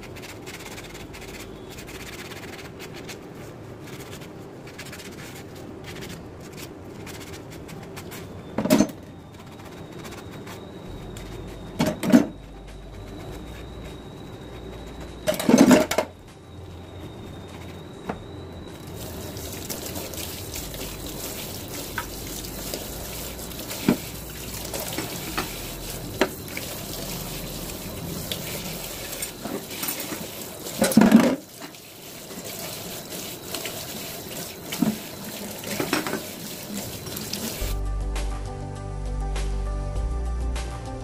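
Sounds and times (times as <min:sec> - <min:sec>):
tap water running into sink: 0:18.9 - 0:37.7.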